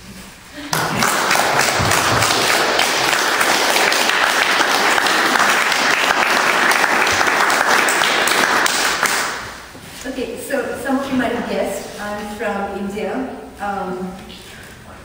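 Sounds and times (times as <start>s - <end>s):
audience applauding: 0.7s - 9.6s.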